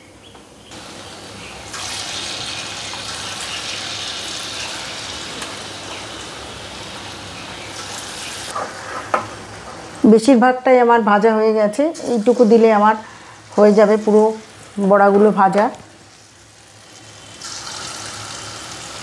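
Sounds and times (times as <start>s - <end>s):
batter sizzling in hot oil: 0.7s - 9.7s, 11.9s - 14.9s, 16.0s - 19.0s.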